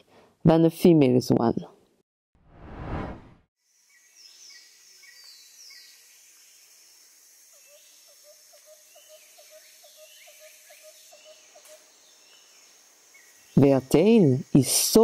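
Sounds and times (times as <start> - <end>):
high insect hiss: 3.6 - 15.0.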